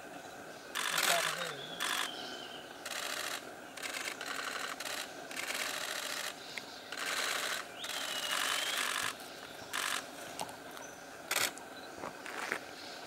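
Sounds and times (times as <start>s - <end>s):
camera shutters firing in bursts: 0.8s - 2.1s, 2.8s - 10.0s, 11.3s - 11.6s.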